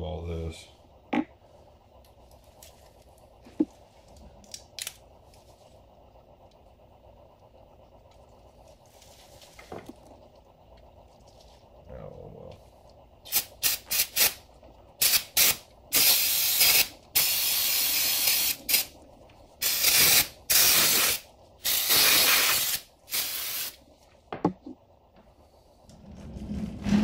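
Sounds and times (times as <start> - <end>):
aerosol spray hissing: 13.3 - 14.4, 15.0 - 19.0, 19.6 - 23.8.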